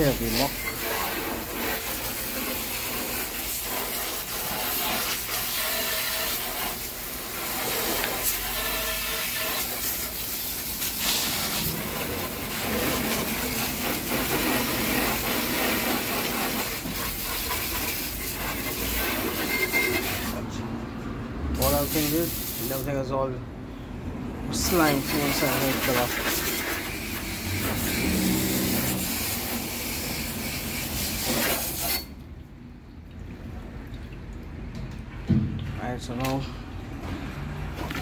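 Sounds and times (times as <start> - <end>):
water spraying from hose nozzle: 0.0 - 20.4, 21.6 - 22.9, 24.5 - 32.2.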